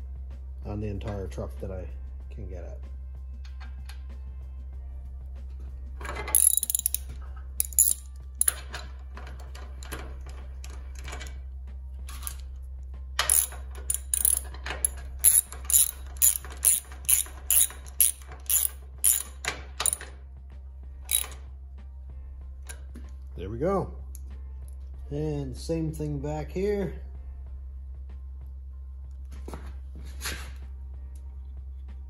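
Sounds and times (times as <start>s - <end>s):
socket ratchet clicking: 6.3s - 8.7s, 13.2s - 20.1s, 21.1s - 21.4s.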